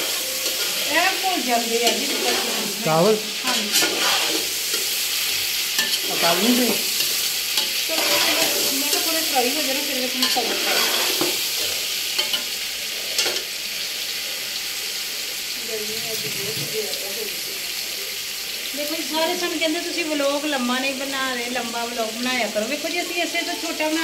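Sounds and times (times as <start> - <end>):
metal spatula scraping pot: 0.0 - 5.1, 5.8 - 9.3, 10.1 - 12.5
chicken frying and sizzling: 0.0 - 24.0.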